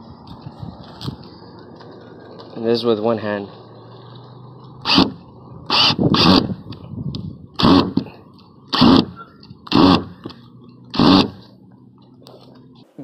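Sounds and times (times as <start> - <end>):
cordless drill driving screw: 4.8 - 6.6, 7.6 - 11.5.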